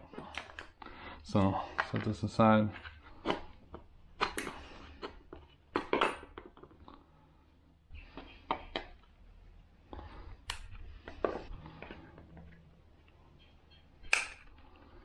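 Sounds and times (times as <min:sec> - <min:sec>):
pliers clicking against plastic: 0:14.0 - 0:14.5.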